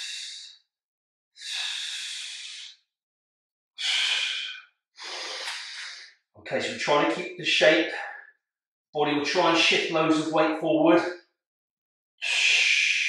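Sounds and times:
man breathing in and out: 0:00.0 - 0:00.5, 0:01.4 - 0:02.8, 0:03.8 - 0:06.1, 0:12.2 - 0:13.0.

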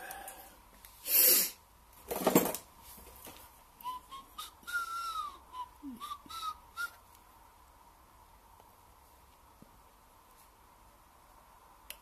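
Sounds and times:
person whistling: 0:03.8 - 0:07.0.

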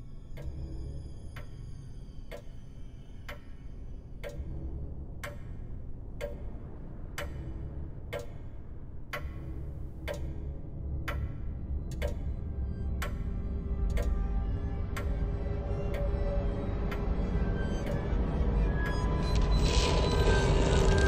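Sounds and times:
low pulsing drone: 0:09.6 - 0:21.0.

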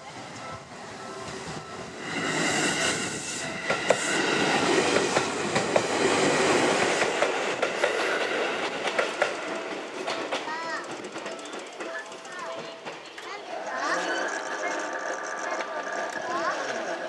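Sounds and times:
train wheel squeal: 0:00.4 - 0:05.9
train wheels clicking over rail joints: 0:01.3 - 0:17.0.

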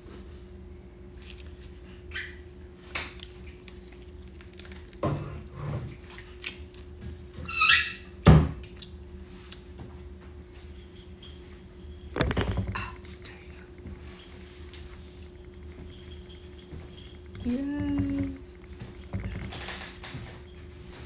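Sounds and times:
short squeak: 0:07.4 - 0:08.1.

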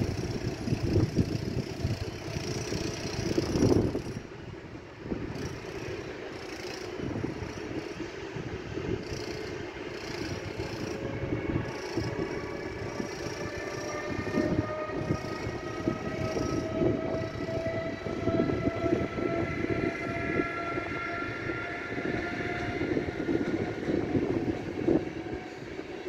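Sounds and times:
locomotive traction motors whining: 0:00.0 - 0:26.0
wheels clattering on rails: 0:00.0 - 0:26.0.

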